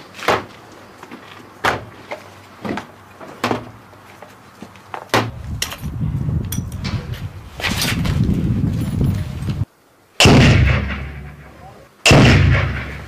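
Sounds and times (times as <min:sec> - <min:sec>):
steady low rumble: 0:05.3 - 0:13.0.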